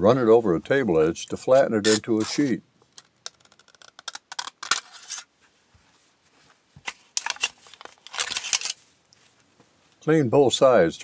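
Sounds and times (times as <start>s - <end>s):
metal sheet scraping and crinkling: 1.8s - 2.5s, 4.4s - 5.3s, 6.9s - 8.8s.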